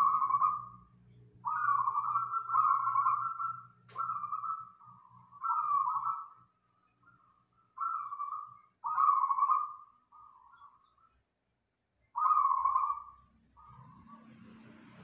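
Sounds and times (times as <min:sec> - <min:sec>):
dove cooing: 0:00.0 - 0:06.4, 0:07.8 - 0:10.8, 0:12.2 - 0:14.2.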